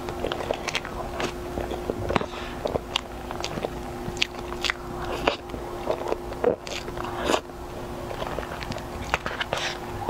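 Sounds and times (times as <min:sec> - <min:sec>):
wet chewing and lip smacks: 0:00.0 - 0:09.9.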